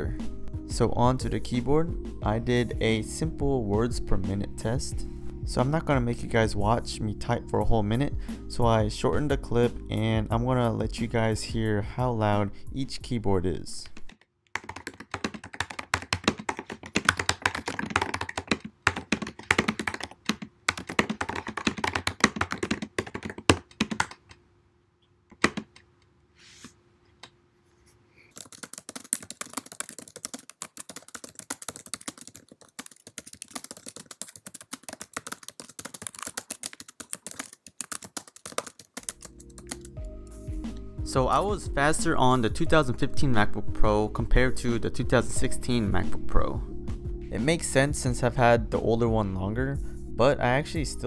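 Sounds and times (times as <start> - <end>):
fast typing on laptop keyboard: 14.0 - 24.4, 25.3 - 25.8, 28.3 - 40.0.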